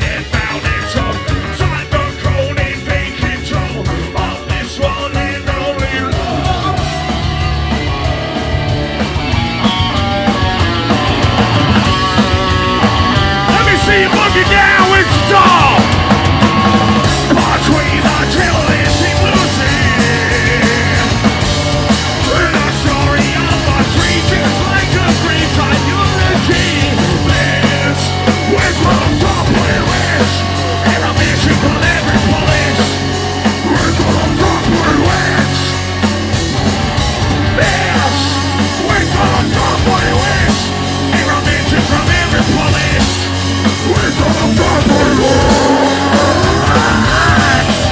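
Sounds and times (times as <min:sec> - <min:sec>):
drums: 0:00.0 - 0:47.9
electric guitar: 0:00.0 - 0:47.9
keyboard: 0:00.0 - 0:47.9
singer shouting into microphone: 0:13.5 - 0:15.9, 0:43.9 - 0:47.9.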